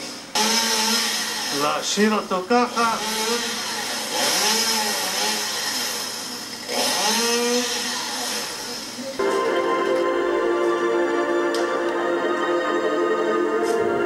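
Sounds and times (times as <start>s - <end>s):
chainsaw revving: 0.3s - 1.9s, 2.6s - 8.8s.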